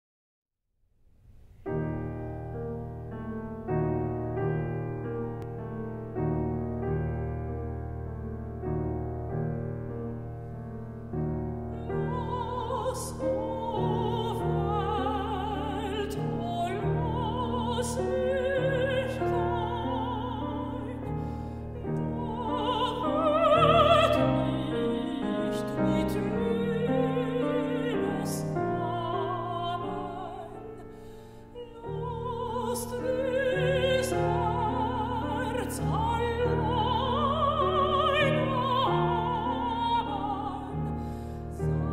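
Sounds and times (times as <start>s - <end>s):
grand piano accompaniment: 1.4s - 41.9s
operatic soprano singing: 11.5s - 41.9s.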